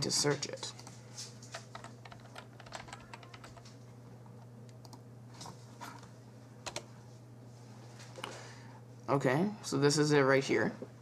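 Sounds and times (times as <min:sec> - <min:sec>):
faint steady low hum: 0:00.0 - 0:11.0
computer keyboard typing: 0:01.5 - 0:03.7, 0:04.7 - 0:05.0, 0:06.6 - 0:06.9.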